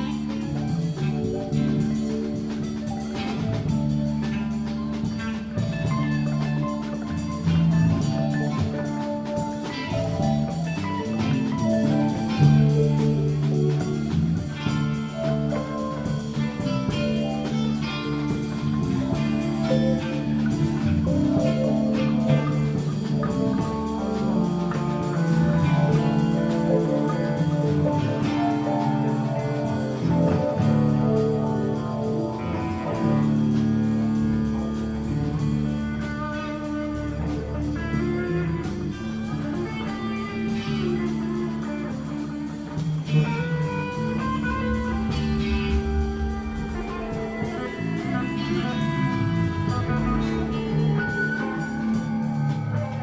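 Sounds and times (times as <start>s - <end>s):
bass: 0.0s - 53.0s
drum kit: 0.0s - 53.0s
guitar: 0.0s - 53.0s.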